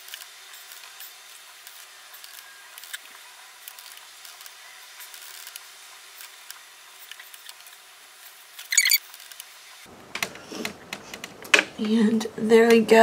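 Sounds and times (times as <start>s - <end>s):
short scratchy squeak: 8.6s - 9.0s.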